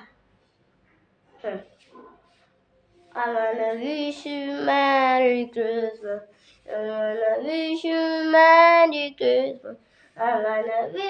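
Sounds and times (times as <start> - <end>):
child singing: 3.1 - 11.0.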